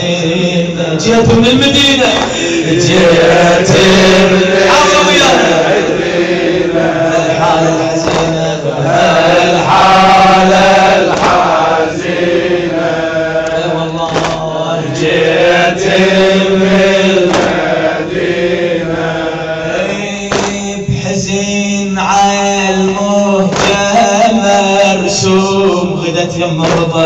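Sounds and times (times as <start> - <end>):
male crowd chanting: 0.0 - 27.0
chest-beating slaps: 2.0 - 3.9, 8.0 - 9.7, 10.8 - 12.1, 13.4 - 14.7, 17.1 - 18.0, 19.8 - 21.0, 22.9 - 24.2, 26.6 - 27.0.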